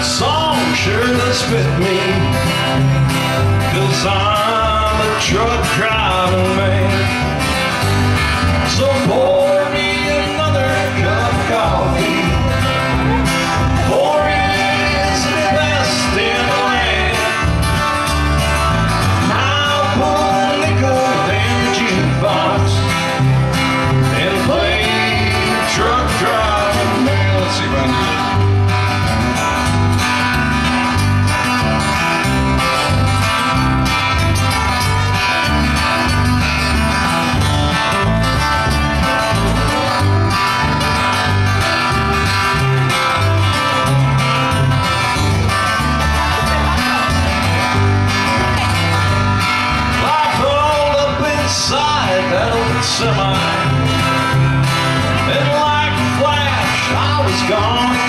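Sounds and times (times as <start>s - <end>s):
country band playing: 0.0s - 58.0s
person singing: 8.7s - 17.6s, 19.2s - 23.0s, 24.1s - 28.4s.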